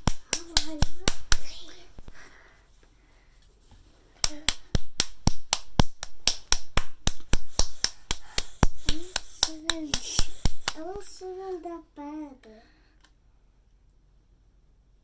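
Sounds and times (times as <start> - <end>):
sharp hand slaps: 0.0 - 1.7, 4.2 - 11.0.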